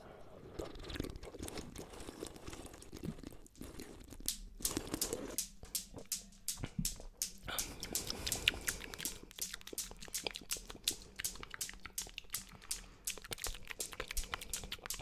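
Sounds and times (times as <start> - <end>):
wet clicks and crackles: 0.6 - 15.0.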